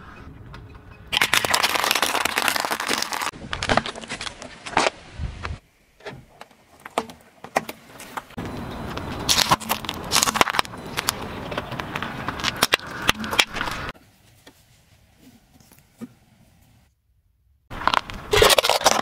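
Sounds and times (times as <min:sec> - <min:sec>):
car tyre rolling: 0:01.6 - 0:14.0
objects crushed under tyre: 0:09.1 - 0:13.9, 0:17.7 - 0:19.0.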